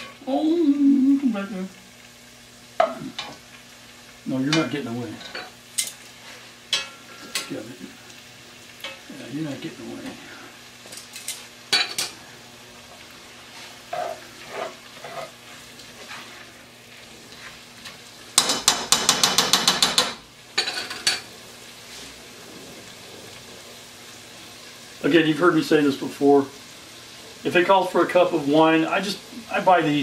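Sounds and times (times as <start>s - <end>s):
faint sizzle: 0.0s - 30.0s
spoon scraping a pot: 13.9s - 15.4s.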